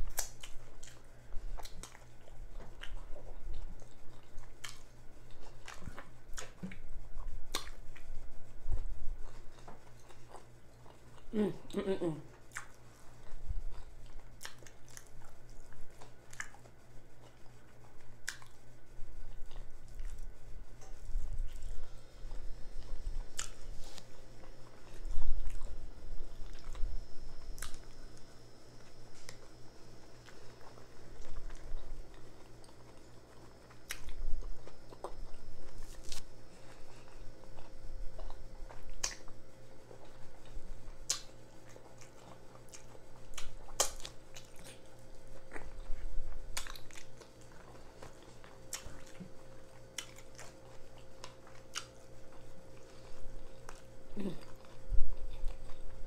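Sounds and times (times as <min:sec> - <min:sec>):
chewing and biting food: 0:00.0 - 0:11.3, 0:12.3 - 0:18.6, 0:19.2 - 0:56.0
wet mouth smacks: 0:39.0 - 0:39.3, 0:41.1 - 0:41.3.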